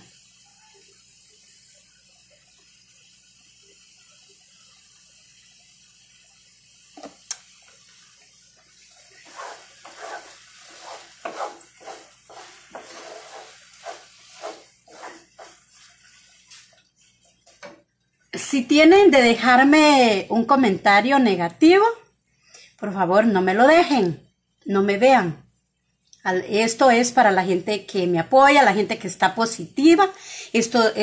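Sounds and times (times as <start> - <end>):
faint steady hiss: 0.0 - 31.0
spatula scraping frying pan: 8.2 - 17.8.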